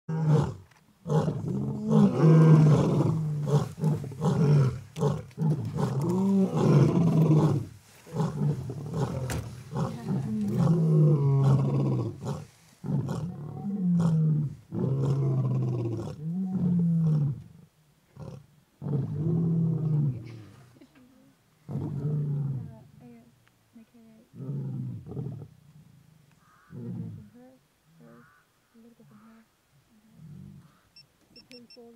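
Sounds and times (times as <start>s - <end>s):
lions roaring: 0.1s - 17.5s.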